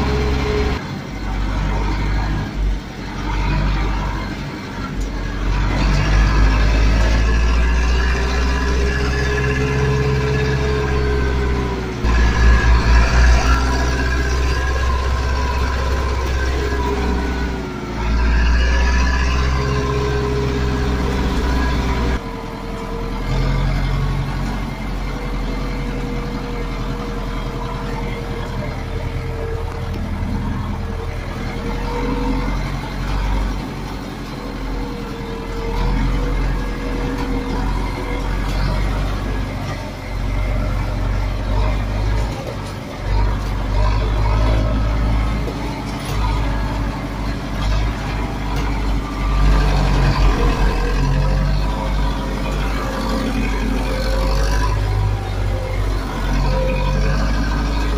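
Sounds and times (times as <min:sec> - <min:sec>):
tractor diesel engine running: 0:00.0 - 0:57.9.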